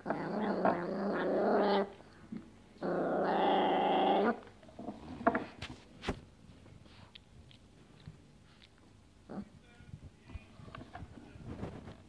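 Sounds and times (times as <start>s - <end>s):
long steady growls: 2.8s - 4.4s.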